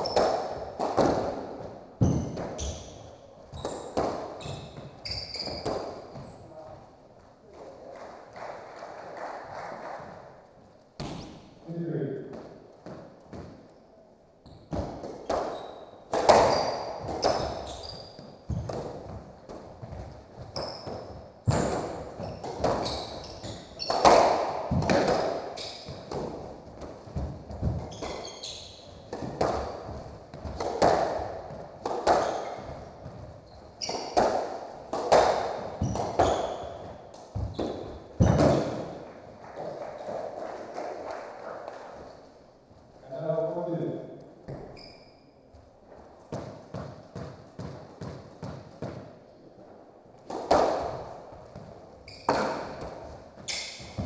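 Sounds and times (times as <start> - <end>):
shoes squeaking on hardwood floor: 0.0 - 0.8, 1.5 - 7.0, 14.4 - 39.3, 44.4 - 49.0, 50.8 - 54.0
squash ball cracking off rackets: 0.0 - 3.0, 14.7 - 40.4, 50.2 - 54.0.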